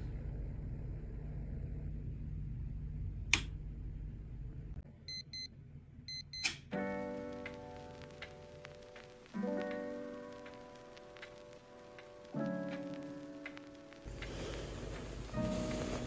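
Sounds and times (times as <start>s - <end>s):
low hum: 0.0s - 16.0s
music: 6.7s - 16.0s.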